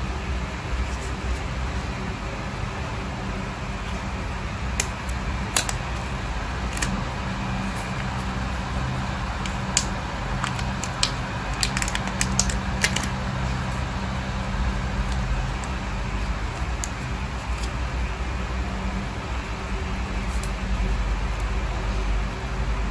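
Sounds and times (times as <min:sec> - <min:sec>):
low background hum: 0:00.0 - 0:22.9
sharp clicks of material bent: 0:04.8 - 0:06.1, 0:09.4 - 0:13.1.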